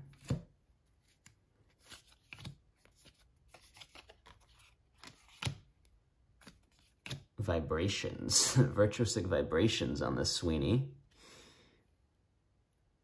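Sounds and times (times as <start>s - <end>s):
trading cards flicking and rustling: 0.0s - 7.4s.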